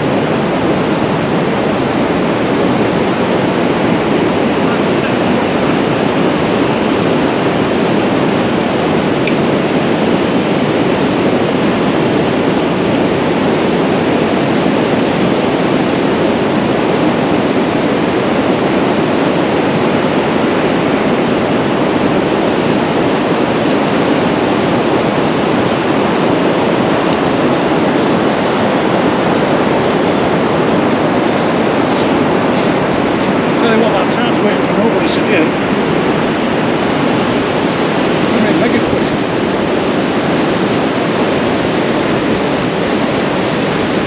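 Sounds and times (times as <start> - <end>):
surf breaking on shore: 0.0 - 44.0
wind on microphone: 0.0 - 44.0.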